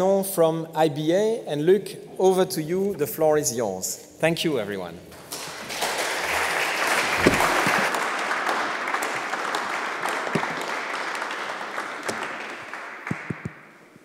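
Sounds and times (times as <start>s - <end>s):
audience applauding: 5.2s - 13.8s.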